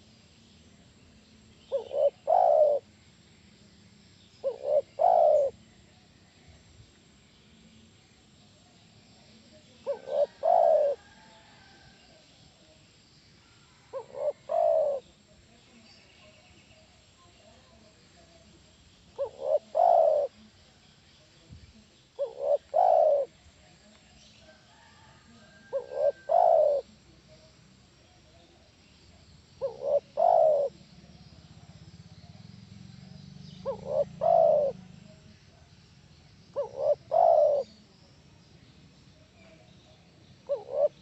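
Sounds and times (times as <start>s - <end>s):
dove cooing: 1.4s - 2.9s, 4.4s - 5.8s, 9.7s - 11.7s, 13.6s - 15.2s, 19.1s - 20.5s, 22.2s - 23.4s, 24.8s - 27.0s, 29.6s - 32.4s, 33.4s - 35.3s, 36.5s - 37.9s, 40.4s - 41.0s.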